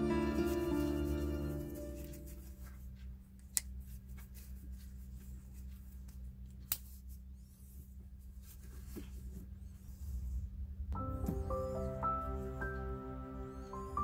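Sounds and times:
soft background music: 0.0s - 3.1s, 10.9s - 14.0s
low steady hum: 0.0s - 14.0s
cloth wiping a metal bracelet: 0.4s - 10.0s.

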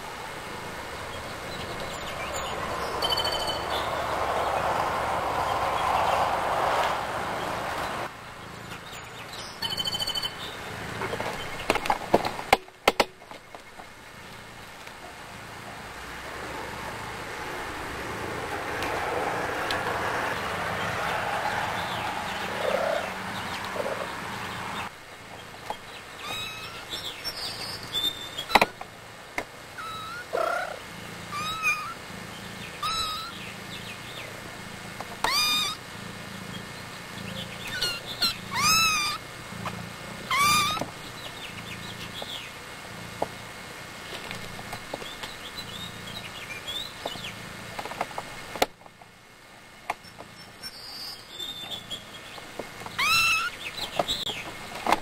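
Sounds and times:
kittens mewing: 26.2s - 27.0s, 29.8s - 32.0s, 32.8s - 33.4s, 35.2s - 36.1s, 37.2s - 40.9s.

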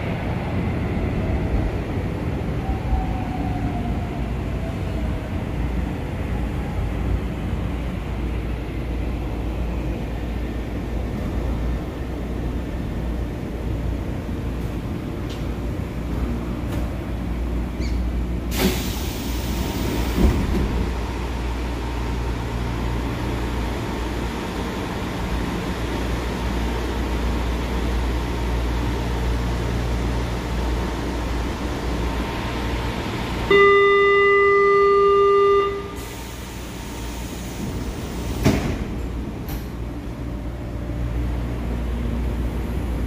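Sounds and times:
train low hum: 0.0s - 43.0s
train doors hissing open: 17.8s - 21.0s, 35.8s - 39.9s
loud door-closing warning tone: 33.5s - 37.5s.

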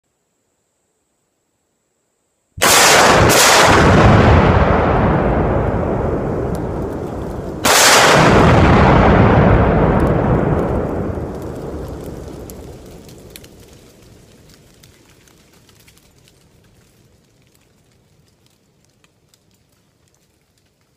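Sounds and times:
explosive blasts: 2.6s - 13.5s
explosion rumble: 2.6s - 13.8s.

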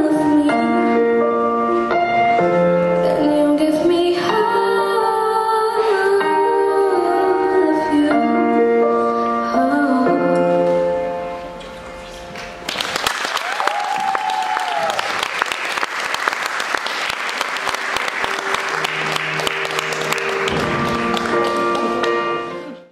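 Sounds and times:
song backing music: 0.0s - 12.9s, 17.1s - 22.9s
audience applauding: 12.6s - 22.8s.

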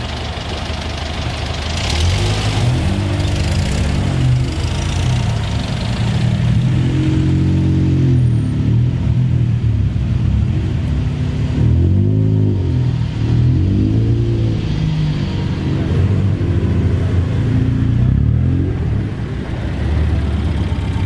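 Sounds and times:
car engine revving: 0.0s - 10.2s, 11.1s - 21.0s.

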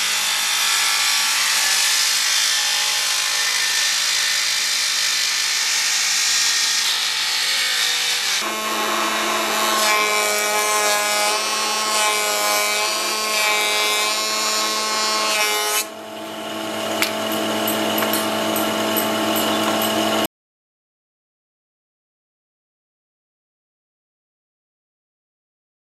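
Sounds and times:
table saw ripping wood: 0.0s - 16.0s
planer planing a board: 0.0s - 20.3s.

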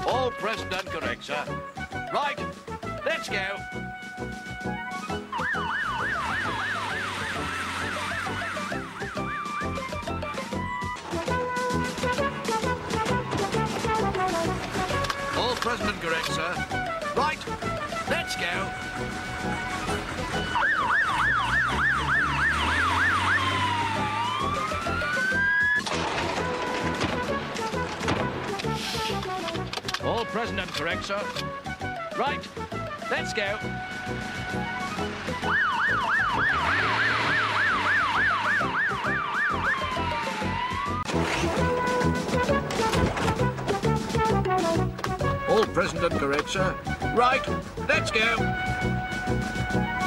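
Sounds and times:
fire engine siren wailing: 3.8s - 15.6s, 16.8s - 27.9s, 33.5s - 43.0s, 48.4s - 50.0s.

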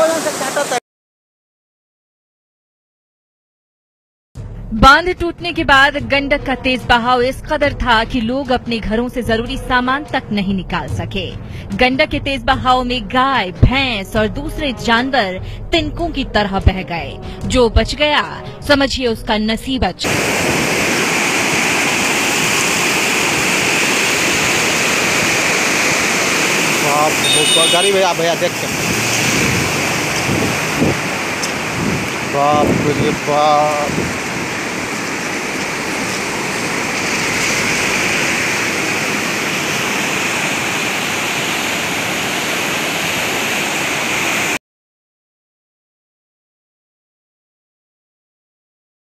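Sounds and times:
floodwater rushing: 0.0s - 0.8s, 20.1s - 44.6s.

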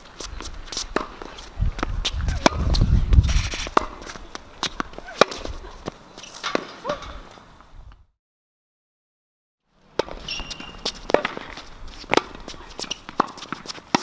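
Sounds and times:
shuffling footsteps: 0.0s - 7.4s, 10.1s - 14.0s
racket hitting tennis ball: 0.6s - 7.3s, 9.9s - 14.0s.

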